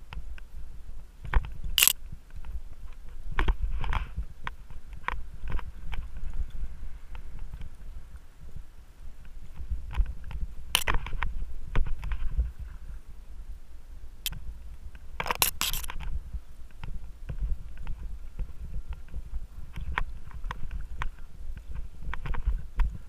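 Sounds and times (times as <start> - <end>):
rattles and clicks: 1.3 - 2.0, 15.2 - 16.1.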